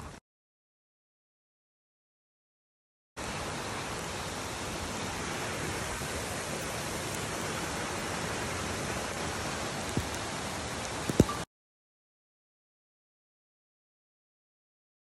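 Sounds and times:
rain falling: 3.2s - 11.5s.

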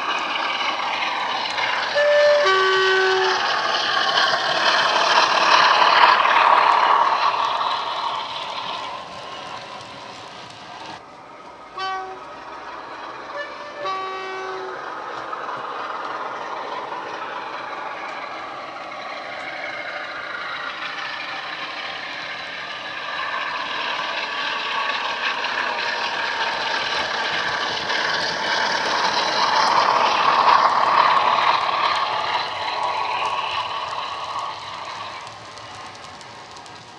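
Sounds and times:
two-tone locomotive horn: 1.9s - 3.6s, 11.7s - 12.4s, 13.3s - 14.8s.

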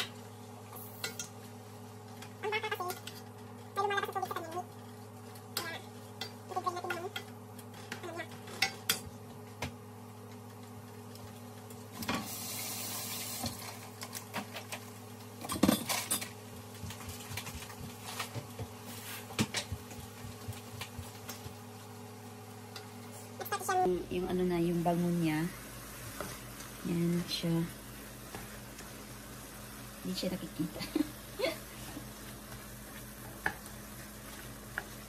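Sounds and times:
meat sizzling: 11.8s - 14.3s.

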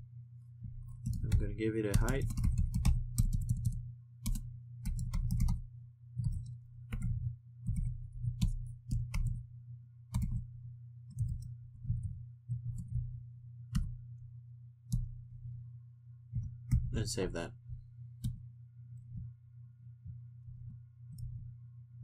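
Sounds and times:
steady low hum: 0.0s - 22.0s
keyboard keystrokes clicking: 1.0s - 5.6s, 6.2s - 9.4s, 10.1s - 10.4s.

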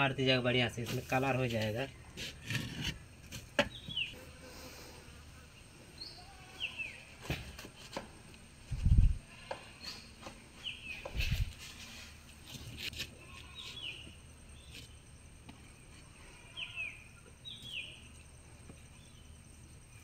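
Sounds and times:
bird chirping: 3.6s - 4.3s, 5.6s - 7.1s, 9.8s - 11.5s, 13.4s - 20.0s.

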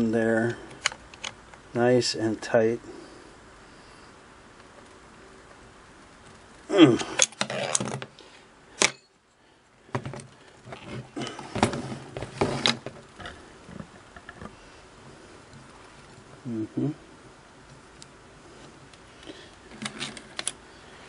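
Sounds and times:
metal parts clinking and scraping: 7.2s - 8.0s.

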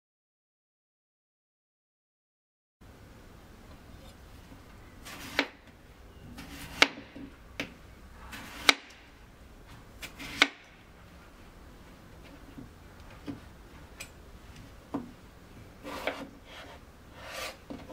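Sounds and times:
knife slicing potato: 5.0s - 5.6s, 6.3s - 7.2s, 8.3s - 9.0s, 10.0s - 10.7s, 15.8s - 17.9s.

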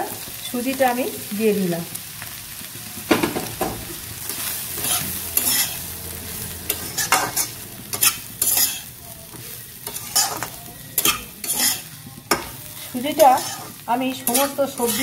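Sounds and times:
sharp knock: 3.1s - 3.8s
metal spatula scraping a pan: 3.9s - 15.0s.

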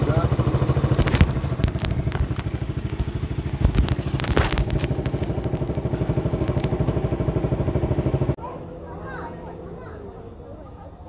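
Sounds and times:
vehicle engine idling: 0.0s - 11.0s
sharp clicks and knocks: 0.7s - 7.2s.

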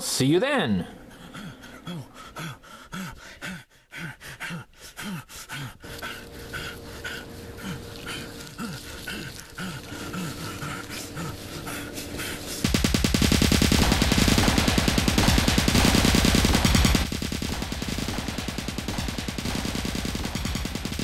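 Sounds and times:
man panting heavily: 1.0s - 13.2s
footsteps in grass: 5.9s - 12.7s.

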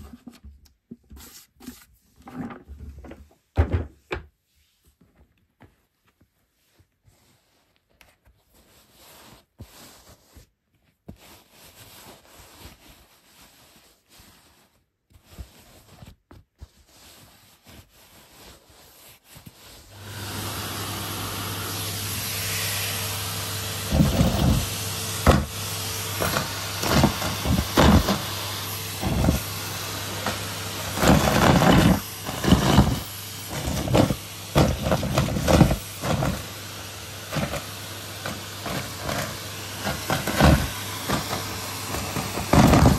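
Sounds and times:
rustling and handling: 0.0s - 42.9s
debris rattling in vacuum hose: 19.9s - 42.9s
vacuum cleaner running: 19.9s - 42.9s.

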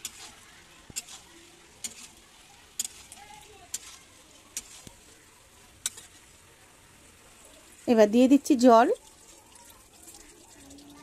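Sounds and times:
metal spatula scraping a pan: 0.0s - 7.8s
faint sizzle: 0.0s - 11.0s.

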